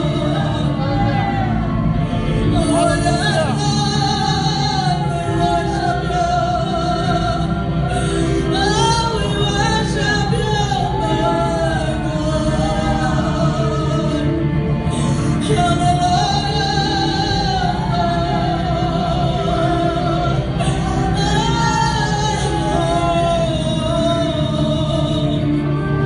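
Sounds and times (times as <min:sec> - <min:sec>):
amplified electric guitar: 0:00.0 - 0:26.0
woman singing into microphone: 0:00.0 - 0:26.0.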